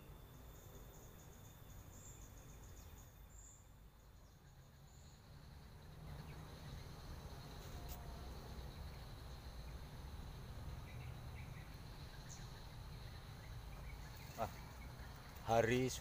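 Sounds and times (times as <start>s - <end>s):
insects trilling: 0.0s - 16.0s.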